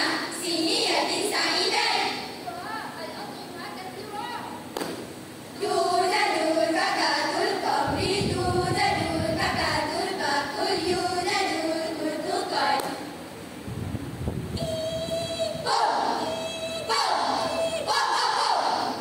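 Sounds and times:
girls' choir chanting in unison: 0:00.0 - 0:02.4, 0:05.6 - 0:13.1, 0:15.6 - 0:19.0.

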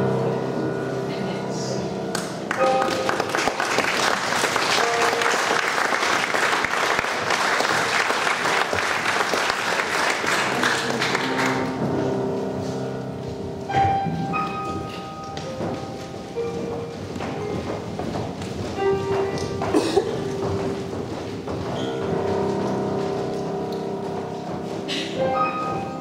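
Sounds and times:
grand piano playing held notes: 0:00.0 - 0:26.0
audience applauding: 0:02.2 - 0:11.7.

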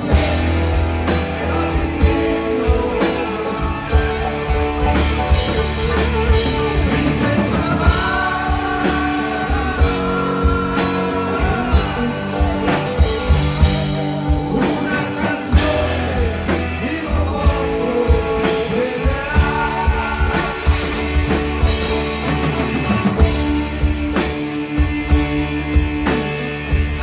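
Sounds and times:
drum kit steady beat: 0:00.0 - 0:27.0
electric guitars: 0:00.0 - 0:27.0.

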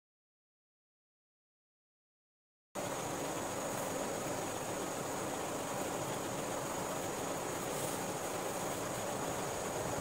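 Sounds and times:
cooling fans running: 0:02.8 - 0:10.0.

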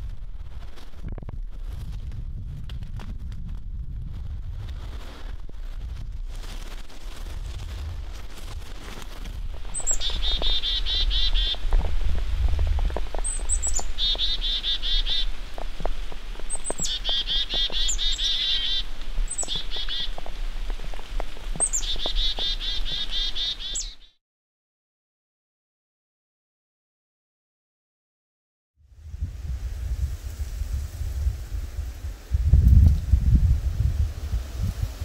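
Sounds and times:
songbird singing trills: 0:09.7 - 0:11.7, 0:13.2 - 0:15.4, 0:16.4 - 0:20.3, 0:21.6 - 0:24.2.

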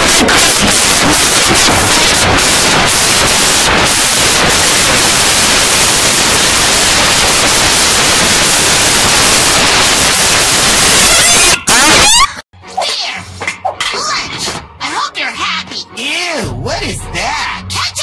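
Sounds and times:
loud static-like hiss: 0:00.0 - 0:12.0.

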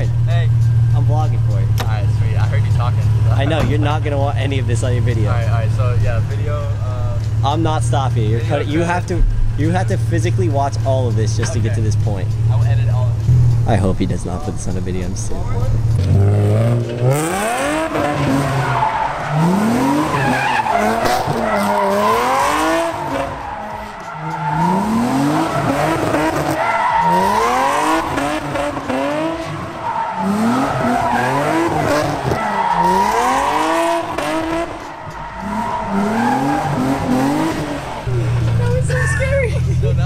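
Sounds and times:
car engine revving: 0:00.0 - 0:40.0
tyres squealing: 0:16.9 - 0:39.8.

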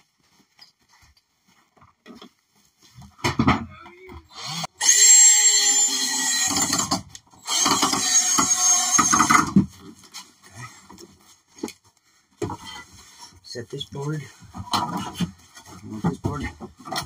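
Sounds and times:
wood knocks: 0:03.1 - 0:03.8
power drill driving screws into wood: 0:04.3 - 0:09.7.

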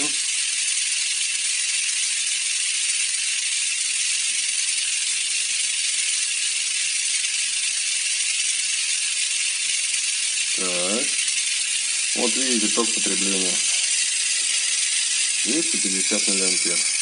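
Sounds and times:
small electric motor whirring: 0:00.0 - 0:17.0.

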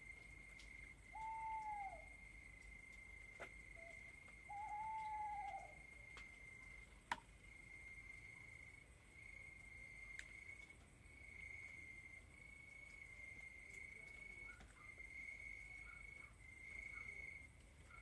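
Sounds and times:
arched hooting call: 0:01.1 - 0:02.1, 0:04.5 - 0:05.8.

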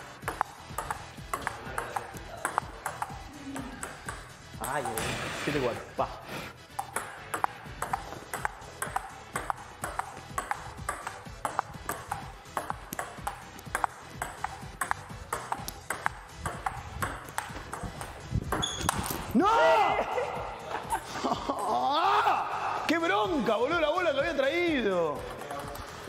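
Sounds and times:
table tennis ball clicking: 0:00.3 - 0:05.0, 0:06.8 - 0:19.2.

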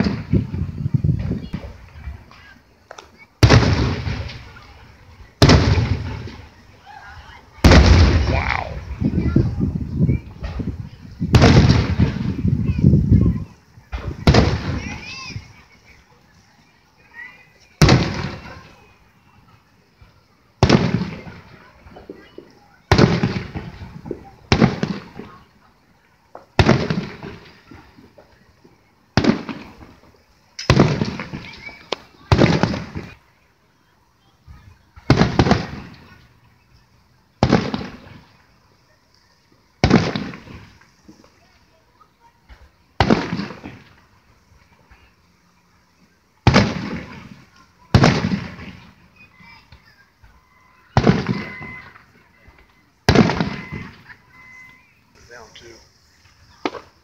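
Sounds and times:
firework shells bursting: 0:05.4 - 0:06.5, 0:10.4 - 0:12.8, 0:17.8 - 0:18.8, 0:20.6 - 0:25.5, 0:26.3 - 0:33.2, 0:37.4 - 0:38.4, 0:39.8 - 0:41.4, 0:42.5 - 0:44.3, 0:46.4 - 0:49.1, 0:50.9 - 0:52.2, 0:53.1 - 0:54.2, 0:55.2 - 0:57.0.

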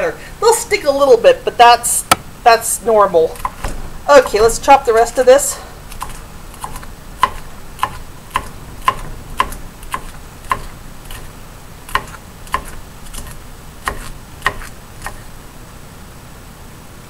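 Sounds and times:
knife chopping on wooden board: 0:05.9 - 0:11.3, 0:11.9 - 0:15.3.

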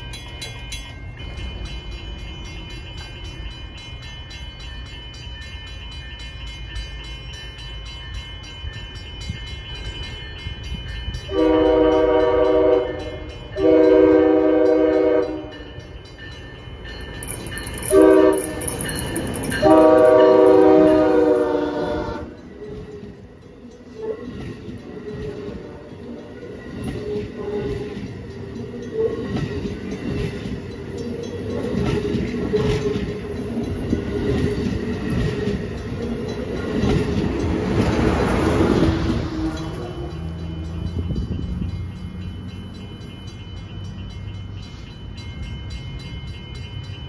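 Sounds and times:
train rumbling: 0:00.0 - 0:47.0
train horn blasts: 0:11.3 - 0:15.7, 0:17.9 - 0:18.7, 0:19.6 - 0:22.4, 0:39.0 - 0:40.3.

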